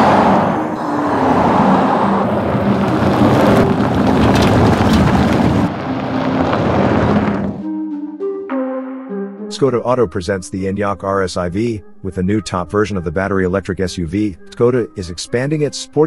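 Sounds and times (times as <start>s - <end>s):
tyre and road noise: 0.0s - 7.6s
music: 7.6s - 16.0s.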